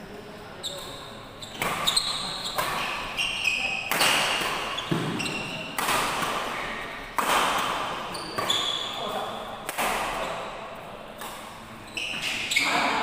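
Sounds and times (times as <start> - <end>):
shoes squeaking on court: 0.6 - 5.9, 8.0 - 9.5, 11.8 - 13.0
racket striking shuttlecock: 1.6 - 3.1, 3.8 - 8.6, 9.6 - 10.3.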